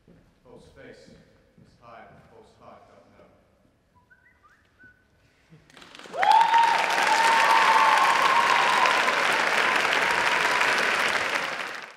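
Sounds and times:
audience applause: 0:05.7 - 0:11.9
high-pitched cheer: 0:06.0 - 0:11.9.

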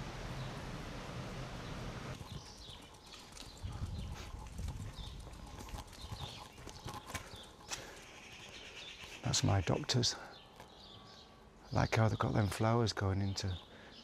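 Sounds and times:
birds chirping: 0:00.0 - 0:14.0
wind rushing over microphone: 0:03.6 - 0:06.3.

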